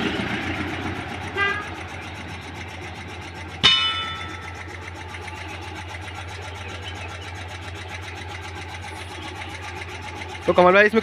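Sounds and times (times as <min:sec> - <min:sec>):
air compressor humming: 0:01.1 - 0:11.0
metallic ring: 0:03.6 - 0:04.6.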